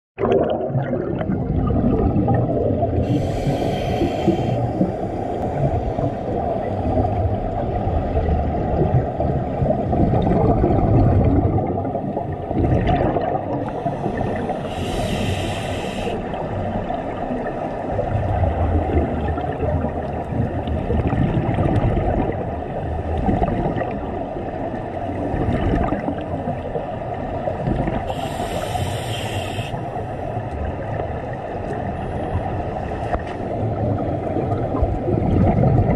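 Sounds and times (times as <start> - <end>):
exhaled bubbles: 0.2 - 26.8, 27.5 - 29.8, 33.6 - 35.9
muffled underwater rumble: 0.2 - 35.9
scuba regulator breath hiss: 3.0 - 6.1, 13.7 - 16.4, 28.1 - 30.0.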